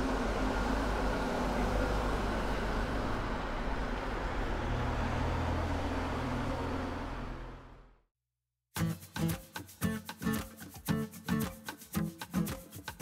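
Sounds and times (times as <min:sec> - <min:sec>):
street traffic rush: 0:00.0 - 0:08.0
low engine hum: 0:00.0 - 0:08.1.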